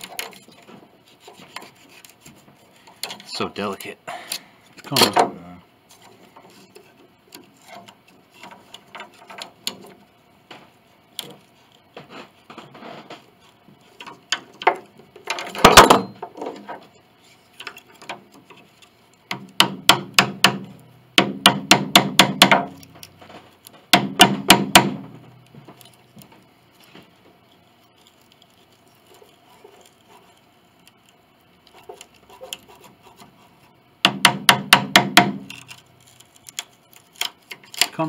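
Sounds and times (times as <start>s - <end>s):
wood scraping: 0.0s - 20.8s, 22.2s - 38.0s
rapid sharp strikes on wood: 14.0s - 16.5s, 19.3s - 25.8s, 34.0s - 35.7s
taps and knocks on wood: 19.3s - 26.4s, 34.0s - 35.6s.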